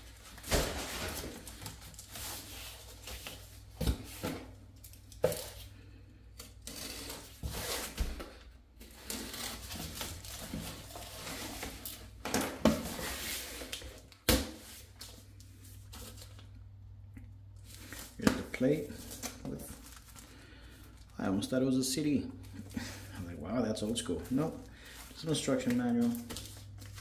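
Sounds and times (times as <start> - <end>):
packaging rustling and scraping: 0.0 - 5.7, 6.4 - 16.5, 17.6 - 21.1.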